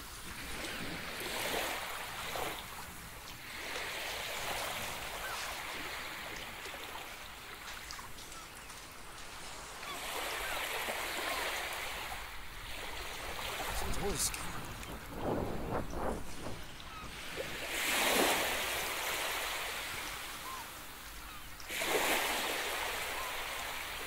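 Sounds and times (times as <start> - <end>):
small waves washing in: 0.0 - 24.0
faint bird calls: 4.6 - 9.0, 9.7 - 12.2, 15.9 - 18.4, 19.4 - 21.7, 22.3 - 24.0.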